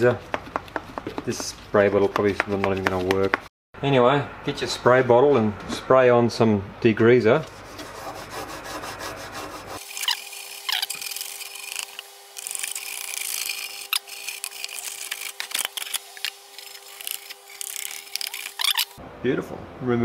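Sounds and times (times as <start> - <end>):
toothbrush scrubbing metal: 7.7 - 19.0
short squeaks: 17.6 - 19.0.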